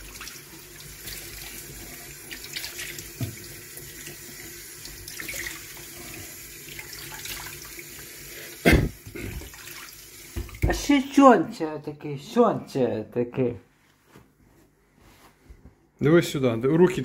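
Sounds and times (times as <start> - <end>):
tap running into steel sink: 3.1 - 3.5, 10.3 - 10.7.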